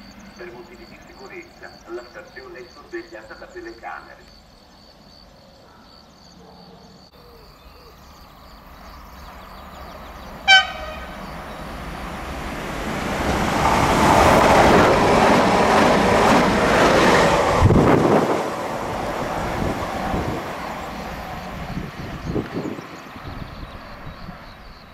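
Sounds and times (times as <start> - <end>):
train wheels rumbling and clattering: 8.8 - 24.5
train horn toot: 10.4 - 11.3.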